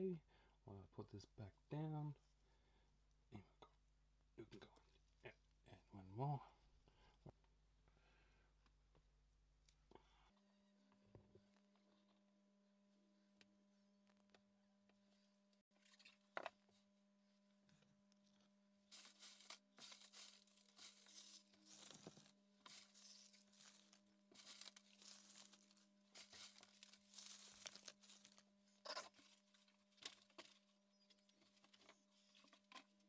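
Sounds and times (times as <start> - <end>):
faint steady hum: 0.0 - 33.0
dry leaves rustling and crackling: 18.9 - 28.4.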